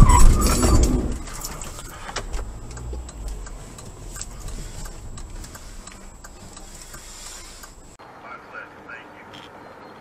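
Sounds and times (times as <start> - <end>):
turn signal clicking: 0.0 - 8.0
engine and tyre rumble: 0.0 - 8.2.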